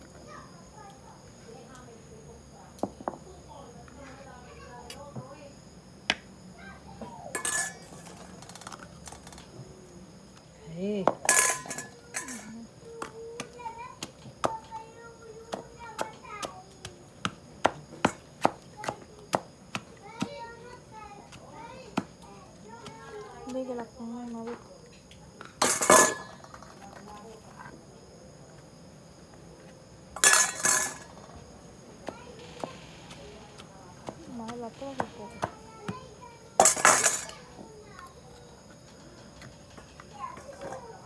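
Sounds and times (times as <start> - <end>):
metal spoon clinking on ceramic plate: 7.4 - 8.1, 11.3 - 12.5
metal spoon scraping steel bowl: 7.4 - 8.2.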